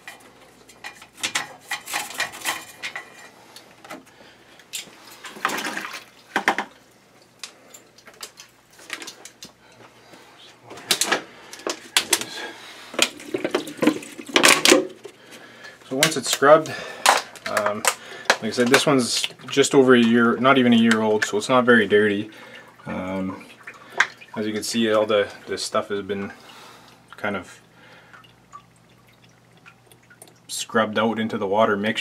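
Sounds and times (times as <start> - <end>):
water sloshing: 4.8 - 15.3, 15.9 - 30.5.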